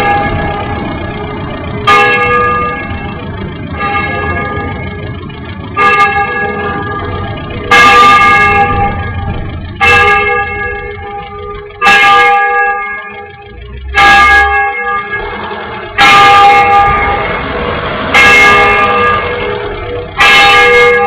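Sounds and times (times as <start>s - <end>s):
church bell tolling: 0.0s - 21.0s
road noise: 0.0s - 21.0s
wind rumble: 0.0s - 21.0s.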